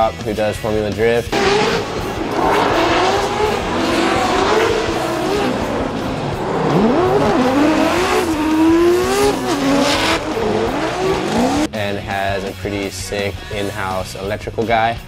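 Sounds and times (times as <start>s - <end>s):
car engine revving hard: 1.3s - 11.7s
tires squealing: 1.3s - 11.7s.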